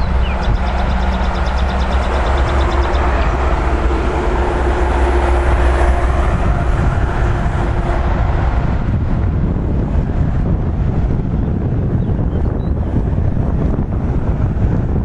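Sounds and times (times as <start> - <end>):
electric train rumbling: 0.0 - 15.0.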